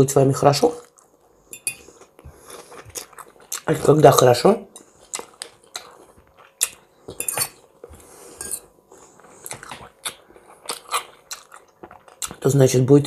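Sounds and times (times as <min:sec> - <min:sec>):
close-up chewing: 0:00.8 - 0:04.0, 0:04.8 - 0:12.5
fork clinking on ceramic bowl: 0:01.5 - 0:01.8, 0:07.2 - 0:07.6.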